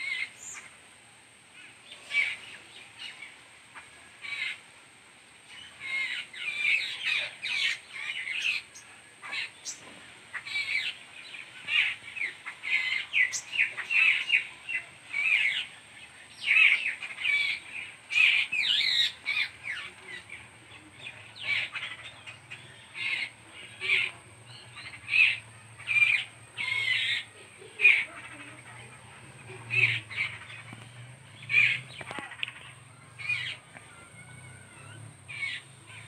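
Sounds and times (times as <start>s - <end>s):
birds chattering calls: 0.0s - 0.9s, 1.5s - 36.0s.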